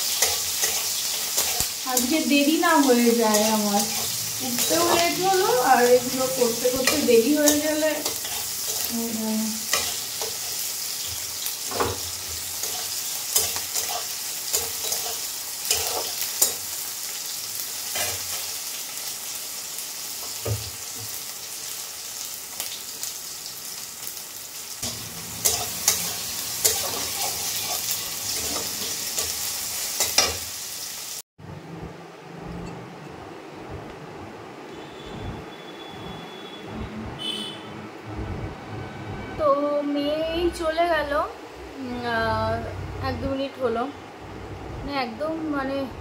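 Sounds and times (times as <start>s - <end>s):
noodles sizzling in a pan: 0.0s - 31.2s
utensil scraping a pan: 6.4s - 8.9s.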